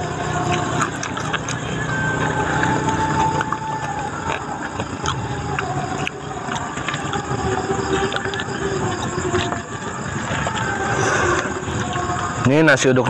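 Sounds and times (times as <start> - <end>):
motor running: 0.0 - 12.4.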